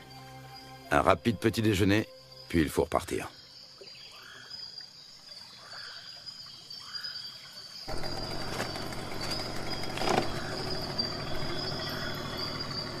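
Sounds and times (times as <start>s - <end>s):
insects trilling: 0.0s - 13.0s
bird call: 6.8s - 13.0s.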